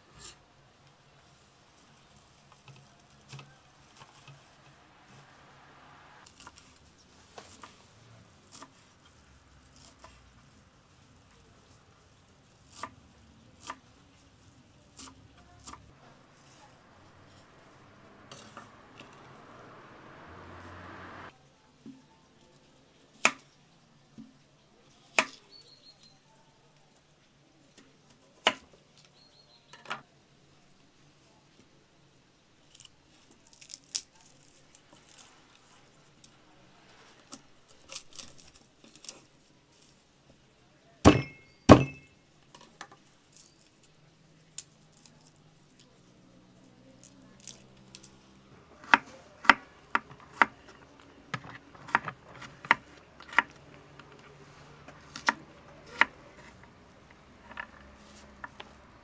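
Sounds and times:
garlic skins crackling: 6.2 - 20.9, 32.6 - 40.2, 43.0 - 46.1, 46.9 - 59.0.

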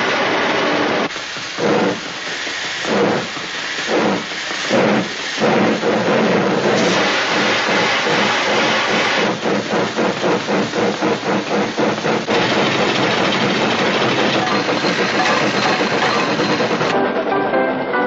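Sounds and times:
steam hissing: 0.0 - 17.0
steam locomotive chugging: 0.0 - 17.7.

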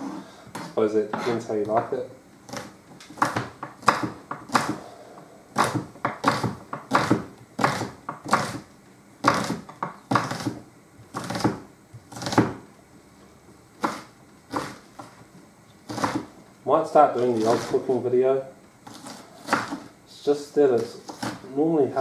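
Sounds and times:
knife chopping on cutting board: 2.5 - 4.9, 5.5 - 12.6, 13.8 - 15.1, 15.9 - 16.4, 17.4 - 17.8, 18.8 - 19.9, 20.8 - 21.5.

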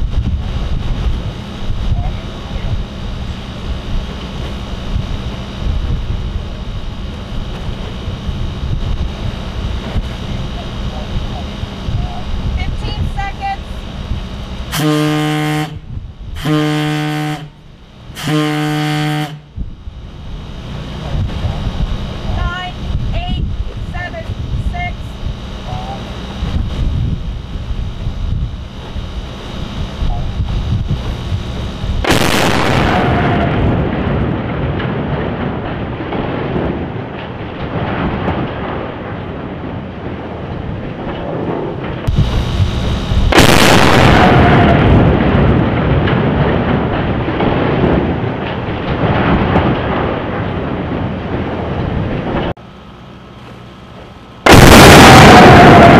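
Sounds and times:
wind buffeting microphone: 0.0 - 14.7, 15.7 - 16.5, 19.4 - 52.6
deep warning horn blasts: 0.0 - 35.4, 42.1 - 46.5
rolling rumble: 0.0 - 55.9
explosive demolition boom: 19.3 - 52.6, 54.4 - 55.9.

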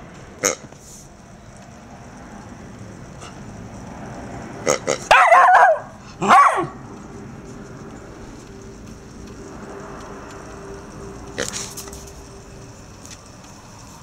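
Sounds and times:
puppy barking: 5.0 - 6.8.

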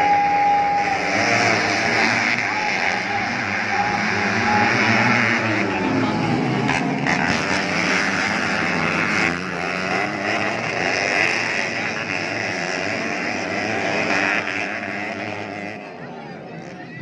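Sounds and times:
dirt bike engines revving: 0.0 - 17.0.

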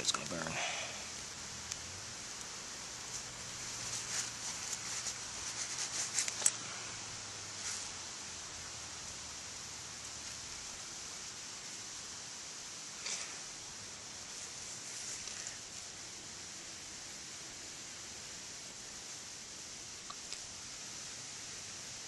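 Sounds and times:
twigs rustling and crackling: 0.0 - 9.1, 9.9 - 12.1, 12.9 - 16.2
faint steady hiss: 0.0 - 22.0.

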